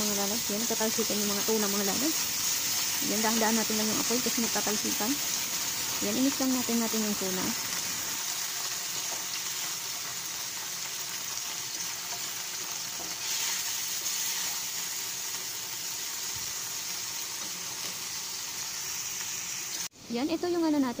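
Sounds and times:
food sizzling in oil: 0.0s - 21.0s
spatula scraping a pan: 12.0s - 14.8s.

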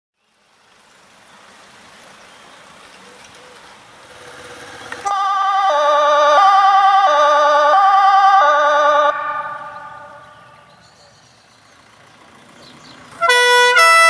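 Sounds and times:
faint road ambience: 0.1s - 14.0s
two-tone fire siren: 5.0s - 10.6s, 13.2s - 14.0s.

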